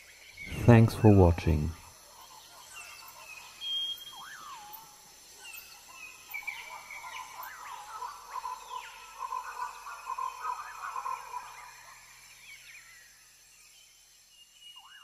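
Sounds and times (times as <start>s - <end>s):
birds chirping and whistling: 2.7s - 4.6s.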